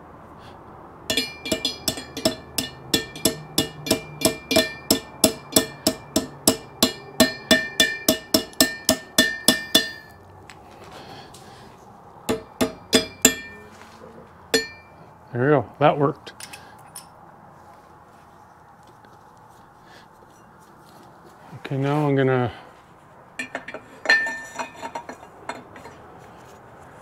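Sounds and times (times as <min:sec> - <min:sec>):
hammer tapping on metal: 0:01.1 - 0:10.2, 0:12.3 - 0:13.7, 0:14.6 - 0:15.0.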